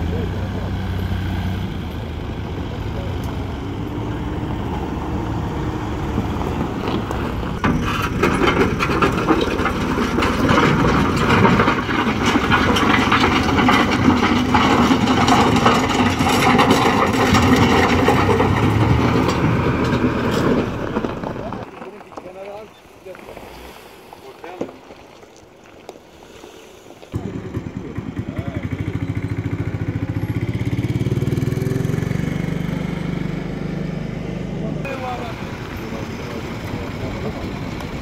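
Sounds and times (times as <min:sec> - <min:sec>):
tractor engines running: 0:00.0 - 0:38.0
rattling and clanking: 0:01.8 - 0:23.3.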